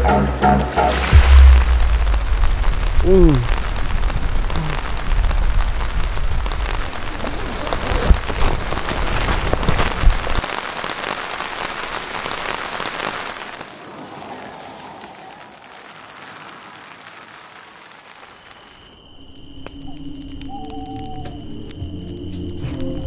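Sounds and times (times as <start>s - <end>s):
deep rumble: 0.6s - 10.4s
rain pattering on tent fabric: 0.7s - 23.0s.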